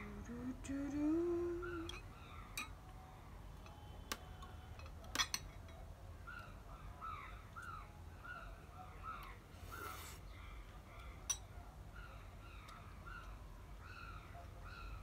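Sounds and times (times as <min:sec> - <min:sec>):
cutlery clinking against bowls: 0:04.7 - 0:05.8.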